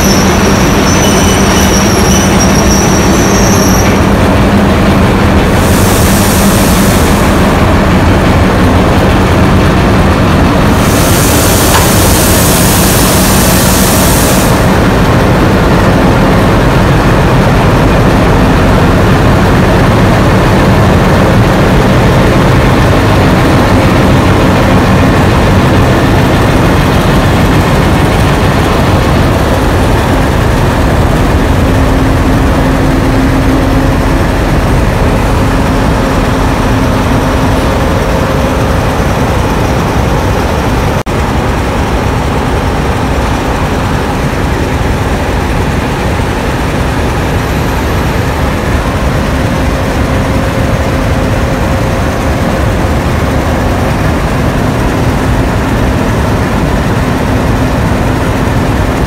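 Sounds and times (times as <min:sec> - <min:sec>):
diesel locomotive engines throbbing: 0:00.0 - 0:59.0
loud hiss: 0:05.6 - 0:07.4, 0:10.7 - 0:14.8.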